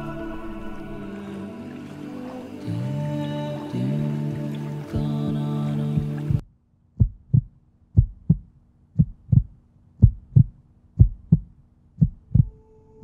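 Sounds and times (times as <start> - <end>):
heartbeat thumps: 4.9 - 6.4, 7.0 - 12.6.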